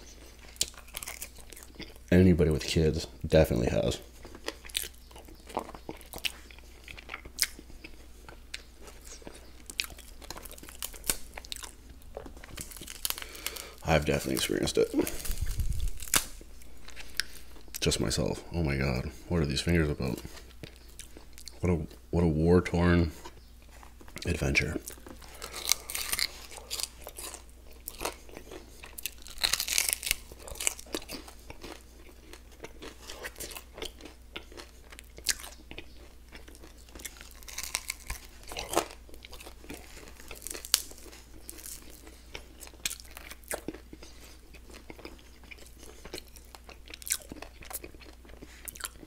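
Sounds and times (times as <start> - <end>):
crunching and chewing: 0.0 - 49.0.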